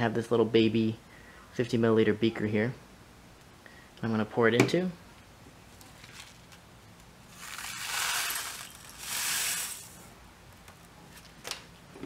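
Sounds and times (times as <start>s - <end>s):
crystals pouring into glass beaker: 7.3s - 10.0s.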